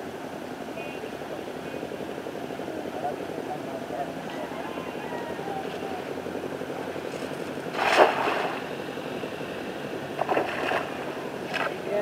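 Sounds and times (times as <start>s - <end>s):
steady low rumble: 0.0s - 12.0s
net splashing into water: 7.7s - 8.7s, 10.2s - 11.7s.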